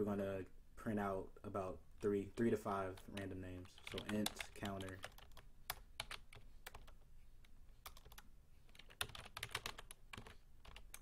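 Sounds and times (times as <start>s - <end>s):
typing on keyboard: 3.0s - 7.0s, 7.8s - 11.0s.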